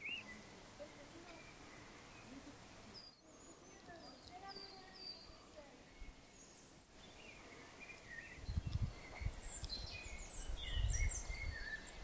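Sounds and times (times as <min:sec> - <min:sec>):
small birds chirping and trilling: 0:00.0 - 0:12.0.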